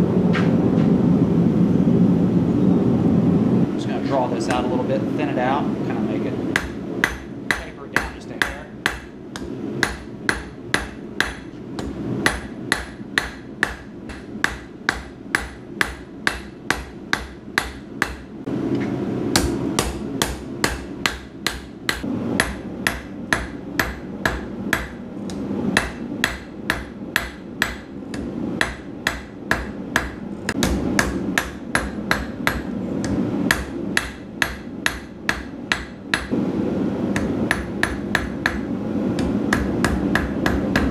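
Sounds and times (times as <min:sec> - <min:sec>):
hammer striking hot metal on anvil: 0:06.5 - 0:18.3, 0:19.3 - 0:32.7, 0:33.5 - 0:36.3, 0:37.2 - 0:40.9.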